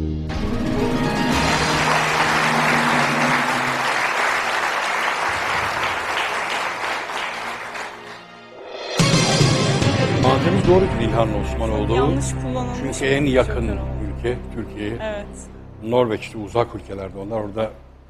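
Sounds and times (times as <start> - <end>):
quiz show music: 0.0 - 17.7
audience applauding: 0.9 - 8.6.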